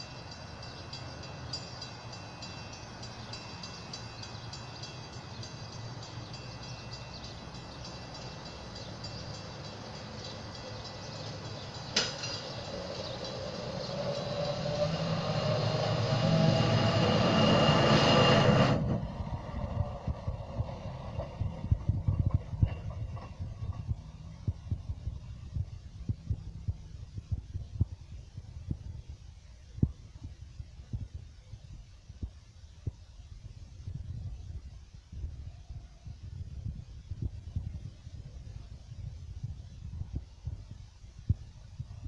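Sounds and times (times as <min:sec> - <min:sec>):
truck rolling on rails: 0:00.0 - 0:27.9.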